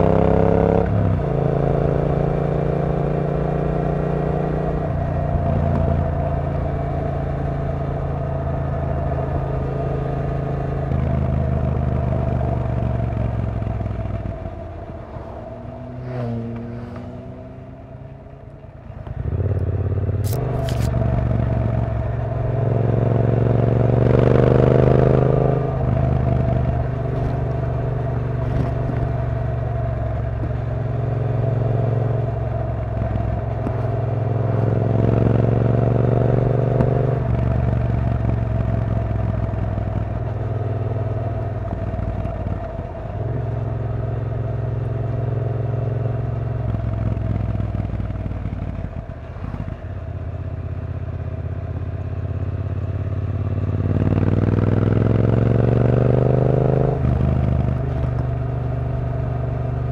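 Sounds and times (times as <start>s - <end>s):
motorcycle engine revving: 0.0s - 59.9s
sharp click: 20.2s - 21.0s.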